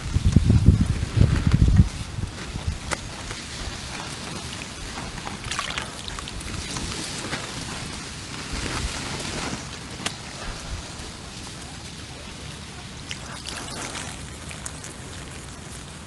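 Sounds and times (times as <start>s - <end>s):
small water patters: 0.0s - 16.0s
water dripping and trickling: 4.4s - 6.6s, 13.0s - 16.0s.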